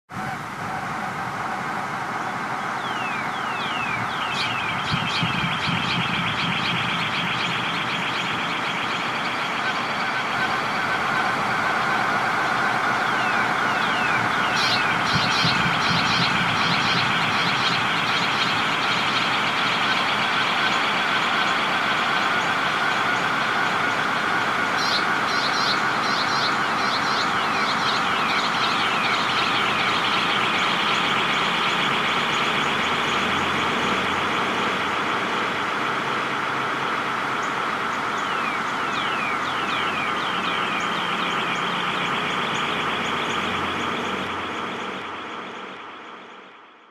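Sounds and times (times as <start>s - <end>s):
birdsong chorus with echo: 2.5s - 46.3s.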